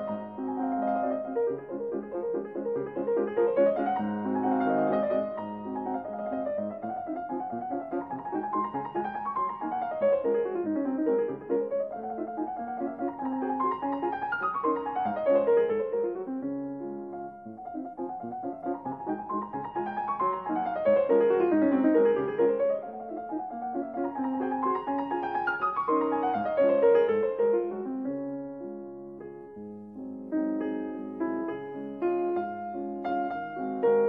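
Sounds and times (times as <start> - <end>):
piano music with quick runs: 0.0 - 34.0.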